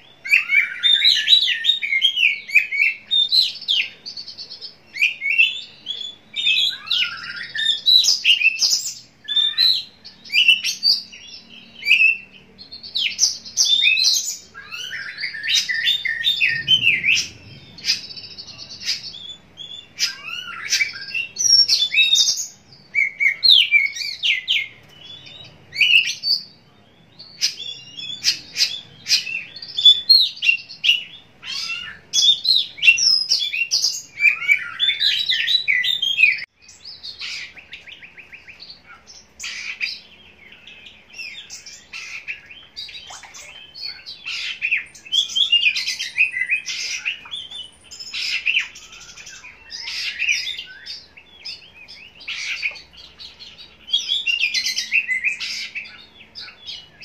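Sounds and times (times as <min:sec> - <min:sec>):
songbird whistling and trilling: 0:00.0 - 0:57.0.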